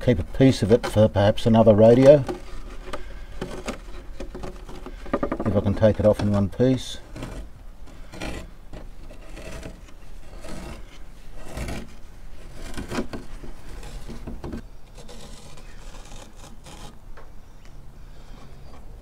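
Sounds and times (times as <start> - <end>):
cloth peeling off wood: 1.8 - 17.0.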